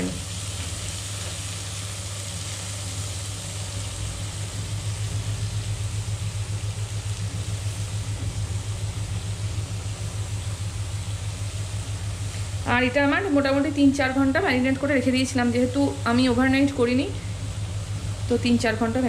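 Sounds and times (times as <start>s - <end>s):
meat sizzling in a frying pan: 0.0s - 12.3s
loud low pulsing hum: 2.8s - 19.0s.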